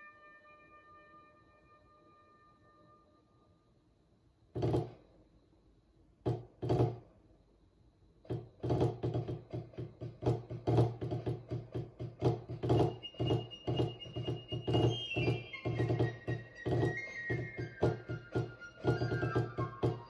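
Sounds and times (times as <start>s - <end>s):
drumsticks striking practice pad: 8.6s - 20.0s.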